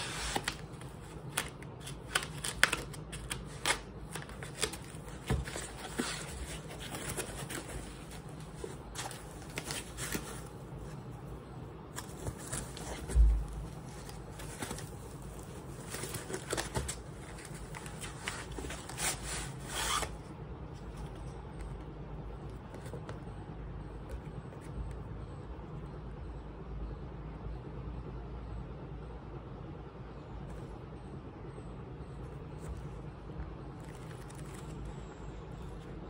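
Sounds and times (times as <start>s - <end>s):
plastic bag rustling and crinkling: 3.5s - 11.1s, 11.9s - 20.1s.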